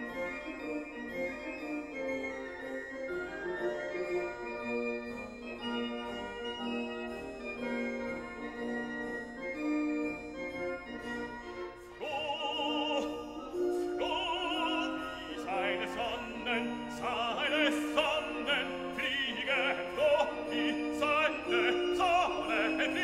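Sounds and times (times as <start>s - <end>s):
operatic singing voice: 12.0s - 23.0s.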